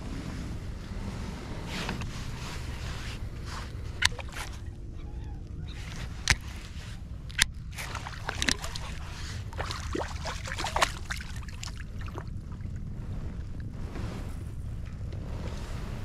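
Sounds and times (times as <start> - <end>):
steady low rumble: 0.0 - 16.0
fish splashing in water: 5.9 - 12.7.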